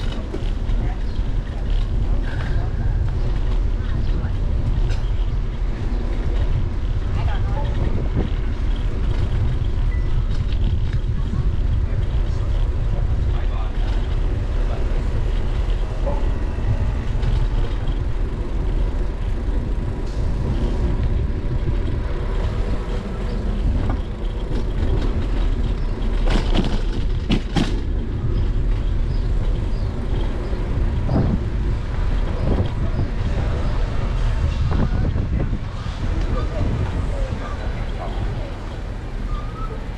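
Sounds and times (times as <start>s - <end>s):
road and street noise: 0.0s - 39.9s
wind buffeting microphone: 0.0s - 39.9s
sharp clicks and rattles: 16.8s - 32.8s.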